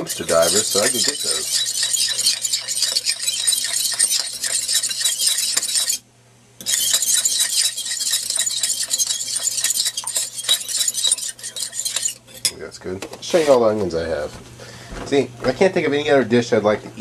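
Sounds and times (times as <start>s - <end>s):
fork clinking against bowl: 0.1s - 6.0s.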